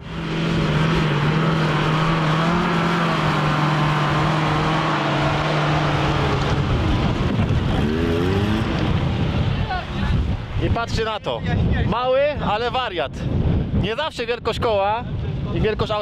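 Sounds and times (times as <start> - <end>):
off-road engine revving: 0.0 - 10.5.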